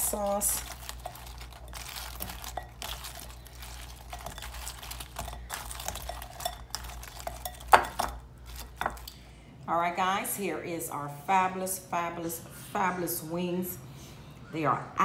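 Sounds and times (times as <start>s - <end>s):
utensil clinking: 0.2s - 9.2s
utensil scraping a pot: 0.6s - 9.0s.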